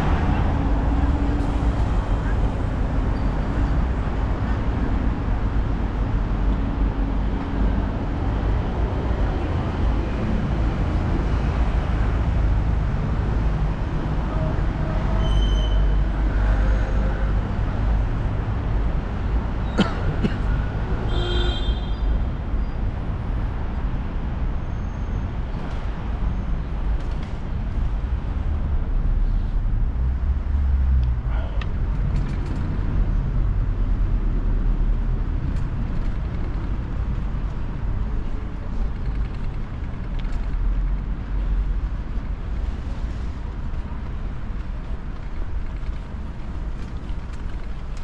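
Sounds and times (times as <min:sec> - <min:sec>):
traffic rumble: 0:00.0 - 0:48.0
short high squeal: 0:15.1 - 0:16.0.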